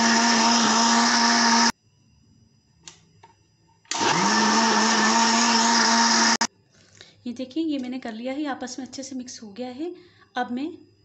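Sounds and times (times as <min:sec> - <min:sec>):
electric blender motor: 0:00.0 - 0:01.7, 0:03.9 - 0:06.5
faint click: 0:02.8 - 0:03.4.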